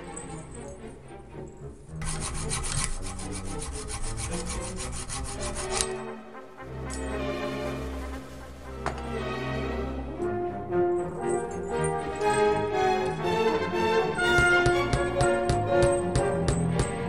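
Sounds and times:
background music with brass: 0:00.0 - 0:17.0
hacksaw rasping strokes: 0:02.0 - 0:06.1.

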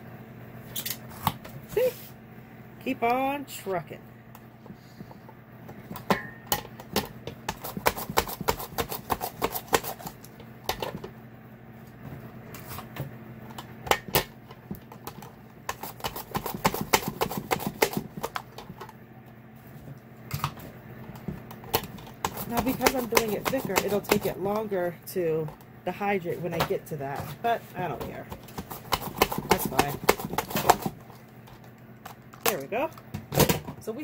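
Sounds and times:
food dehydrator humming: 0:00.0 - 0:34.0
mandoline slicing cucumbers: 0:07.5 - 0:10.2, 0:15.7 - 0:18.4, 0:21.7 - 0:24.6, 0:27.2 - 0:30.9.

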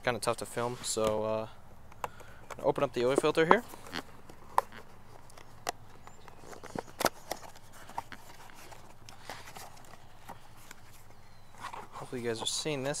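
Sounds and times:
cardboard box being opened: 0:03.2 - 0:12.5.

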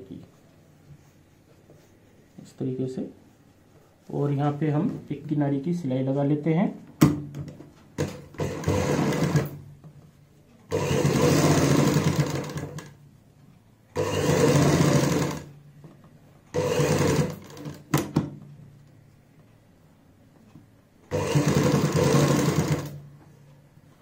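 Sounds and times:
sewing machine clicks: 0:08.0 - 0:09.6, 0:10.7 - 0:13.0, 0:14.0 - 0:15.5, 0:16.5 - 0:18.0, 0:21.1 - 0:23.0
sewing machine stitching: 0:08.0 - 0:09.6, 0:10.7 - 0:13.0, 0:13.9 - 0:15.5, 0:16.5 - 0:18.1, 0:21.1 - 0:23.0.

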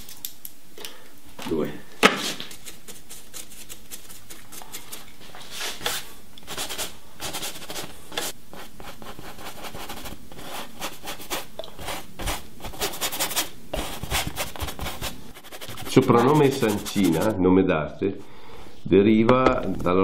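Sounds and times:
paintbrush rubbing on canvas: 0:02.3 - 0:17.4.

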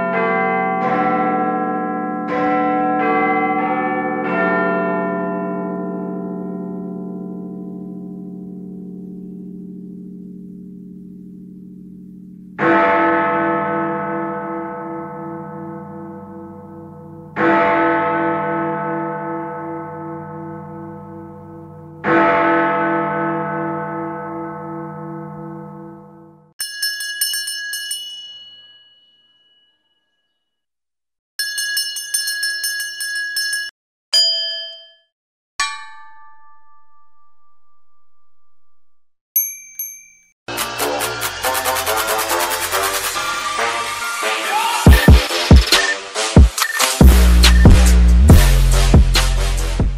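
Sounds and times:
large church bell ringing: 0:00.0 - 0:26.4
small high-pitched bell ringing: 0:26.6 - 0:30.3, 0:31.4 - 0:35.1, 0:39.4 - 0:40.4.

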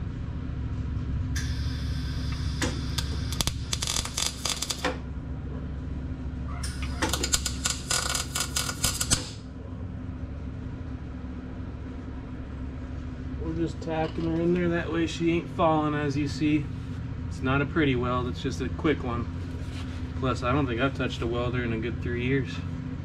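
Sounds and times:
steady low hum: 0:00.0 - 0:23.0
welding arc crackle: 0:01.4 - 0:05.0, 0:06.7 - 0:09.4.

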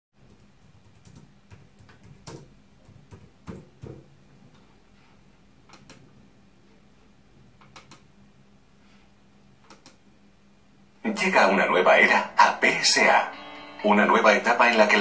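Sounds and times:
keyboard typing: 0:00.2 - 0:04.0, 0:05.6 - 0:06.1, 0:07.6 - 0:08.1, 0:09.6 - 0:10.0
mouse clicks: 0:05.7 - 0:06.0, 0:07.6 - 0:08.1, 0:09.6 - 0:10.0.

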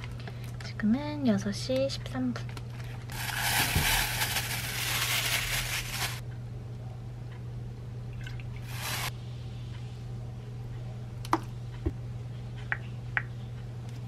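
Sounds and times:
low steady hum: 0:00.0 - 0:14.0
plastic bag crinkling: 0:03.1 - 0:06.2, 0:08.7 - 0:09.1.

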